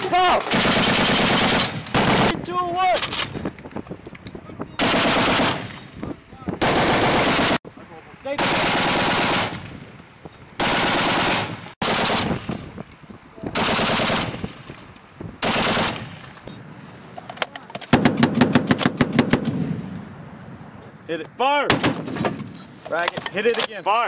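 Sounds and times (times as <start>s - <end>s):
heavy machine gun bursts: 0.5s - 2.3s, 4.8s - 5.7s, 6.6s - 7.6s, 10.6s - 12.5s, 13.6s - 14.5s, 15.4s - 16.2s.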